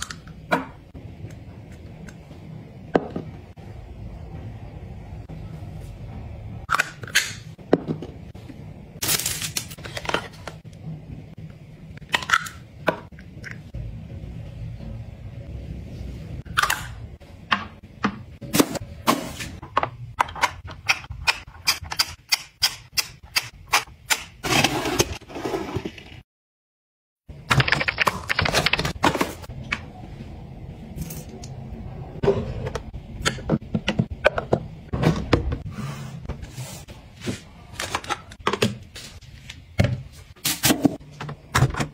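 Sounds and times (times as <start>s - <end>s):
low steady hum: 0.0s - 21.4s.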